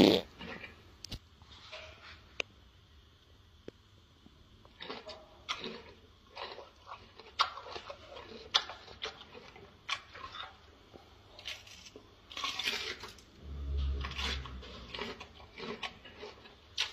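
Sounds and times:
gorilla chewing crunchily: 4.6s - 16.9s.

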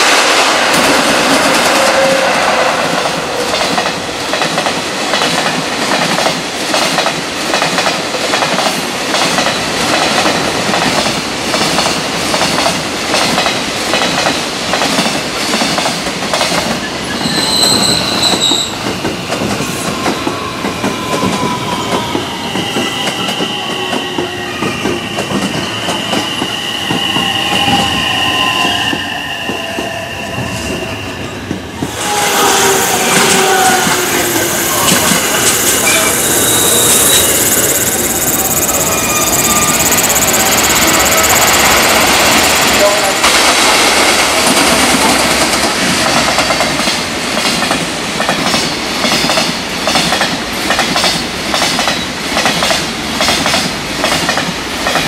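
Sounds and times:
train wheels clattering on rails: 0.0s - 55.0s
metallic wheel squeal: 17.1s - 18.8s, 32.8s - 41.6s.

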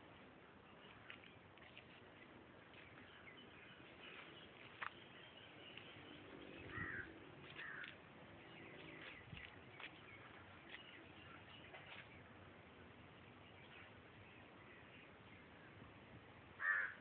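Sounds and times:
bird chirps: 2.7s - 12.3s.

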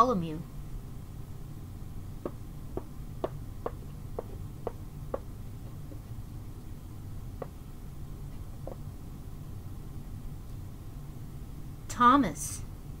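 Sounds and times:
wooden figure knocking on wood: 2.2s - 6.1s.

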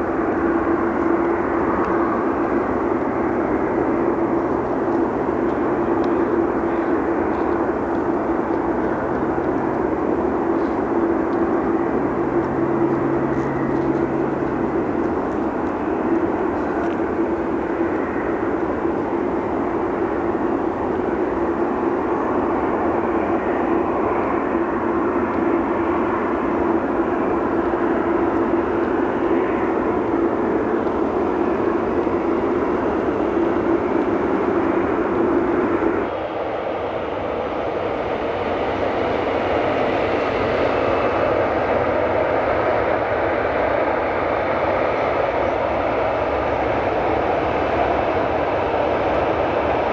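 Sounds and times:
constant hum: 0.0s - 49.9s
jet engines rushing: 0.0s - 49.9s.

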